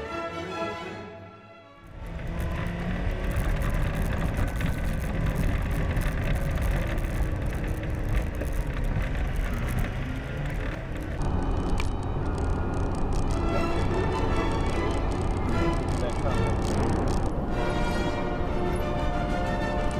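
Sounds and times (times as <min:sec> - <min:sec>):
vehicle engine rumbling: 0:01.8 - 0:19.9
knocks and rattles over bumps: 0:01.9 - 0:17.4.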